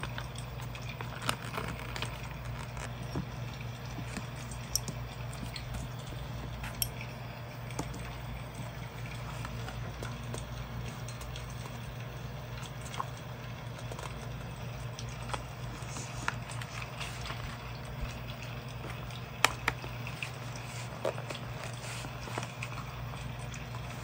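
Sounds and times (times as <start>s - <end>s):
steady low hum: 0.0s - 24.0s
notebook handling noises: 0.9s - 5.8s, 15.2s - 23.0s.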